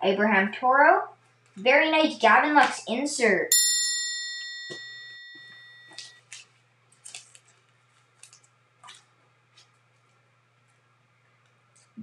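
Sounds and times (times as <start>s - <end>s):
bell-like chime: 3.5s - 6.2s.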